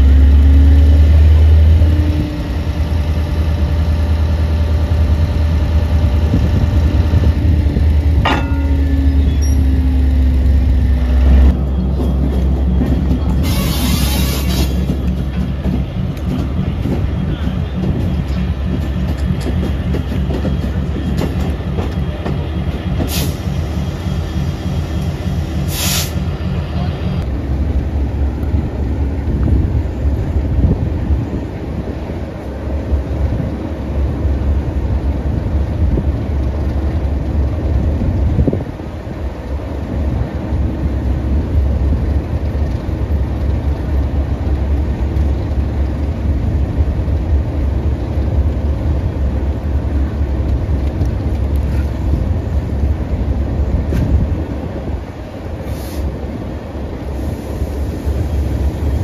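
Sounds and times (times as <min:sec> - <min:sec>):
deep diesel engine rumble: 0:00.0 - 0:59.0
diesel locomotive idling: 0:00.0 - 0:59.0
air hissing: 0:25.6 - 0:26.3, 0:55.6 - 0:56.2.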